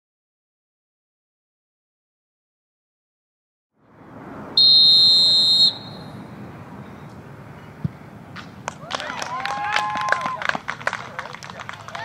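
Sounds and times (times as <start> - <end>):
open-air field noise: 3.7 - 12.0
referee's whistle blast: 4.6 - 6.2.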